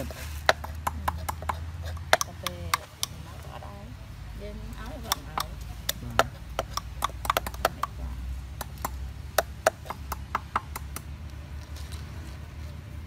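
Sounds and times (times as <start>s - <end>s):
cleaver chopping on wooden block: 0.4s - 3.2s, 5.0s - 8.0s, 8.6s - 11.0s.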